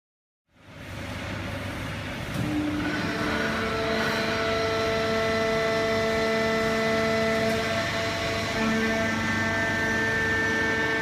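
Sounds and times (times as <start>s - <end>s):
baler machine noise: 1.4s - 11.0s
machine whining tones: 2.3s - 11.0s.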